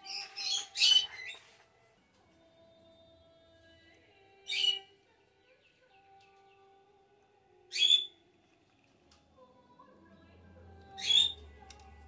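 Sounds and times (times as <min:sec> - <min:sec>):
bird chirping: 0:04.5 - 0:06.8, 0:10.9 - 0:11.6.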